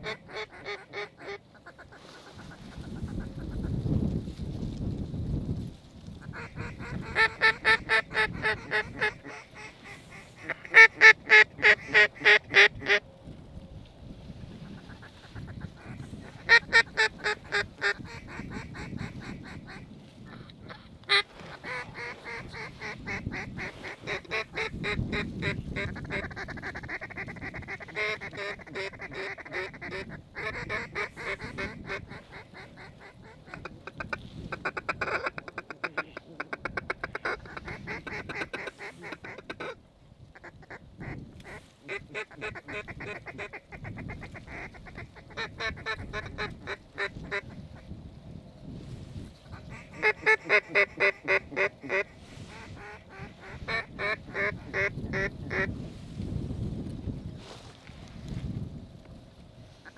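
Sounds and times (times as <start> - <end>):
geese honking: 0.0 - 3.3, 6.2 - 13.0, 14.7 - 19.8, 20.7 - 39.8, 49.5 - 55.7
ducks quacking: 0.0 - 3.7, 6.2 - 13.0, 14.7 - 39.8, 40.4 - 47.9, 49.4 - 55.7.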